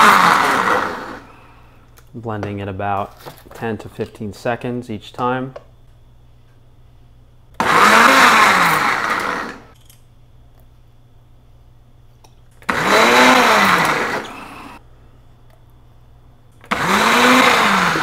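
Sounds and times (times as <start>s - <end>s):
blender motor pulsing: 0.0s - 1.3s, 7.6s - 9.8s, 12.6s - 14.8s, 16.7s - 18.0s.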